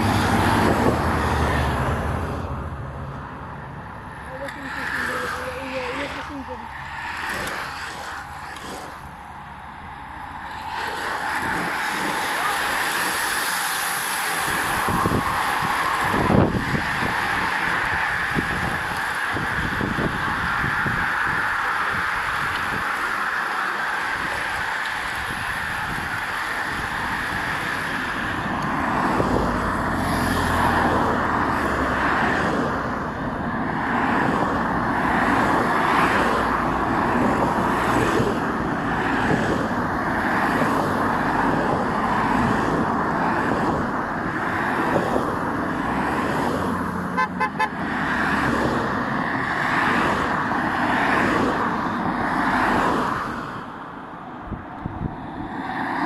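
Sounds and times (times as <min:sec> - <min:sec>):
cars driving past: 0:00.0 - 0:56.0
car horns tooting: 0:47.1 - 0:47.9.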